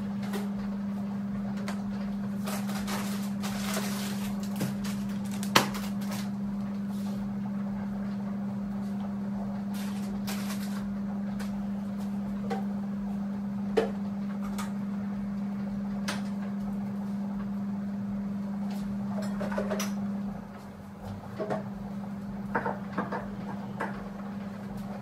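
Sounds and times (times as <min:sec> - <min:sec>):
steady low hum: 0:00.0 - 0:25.0.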